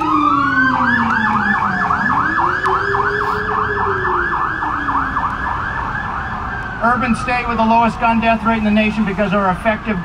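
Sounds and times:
slower wailing siren tone: 0.0s - 7.6s
siren in fast yelp mode: 0.0s - 10.0s.

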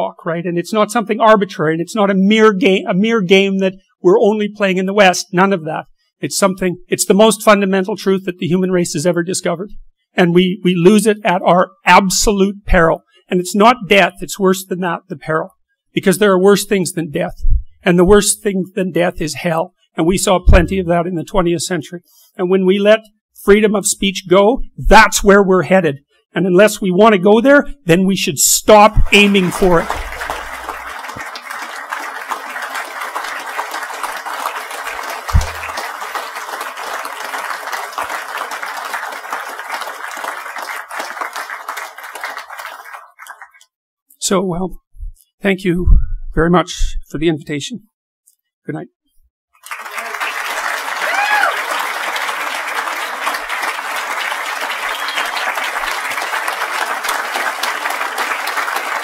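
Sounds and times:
audience applauding: 29.0s - 43.6s, 49.6s - 59.0s
low thump: 35.3s - 35.8s.

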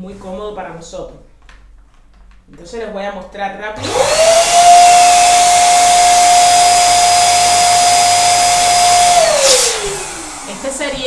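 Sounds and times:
balloon pump motor whine: 3.8s - 11.0s.

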